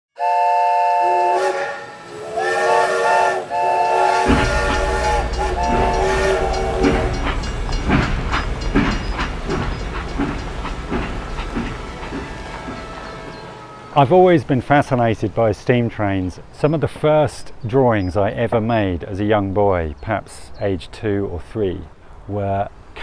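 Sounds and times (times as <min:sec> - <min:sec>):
steam locomotive chime whistle: 0:00.2 - 0:14.2
rhythmic knocking of train: 0:00.2 - 0:16.7
train rumble: 0:00.4 - 0:23.0.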